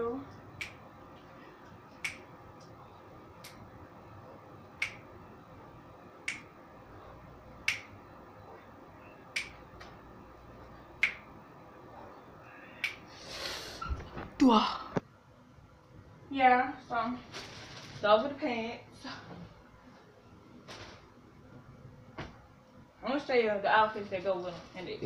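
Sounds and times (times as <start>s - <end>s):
finger snaps: 0.6s - 0.8s, 1.9s - 2.7s, 3.4s - 3.6s, 4.8s - 5.0s, 6.2s - 6.5s, 7.6s - 8.0s, 9.3s - 9.9s, 11.0s - 11.3s, 12.8s - 13.1s.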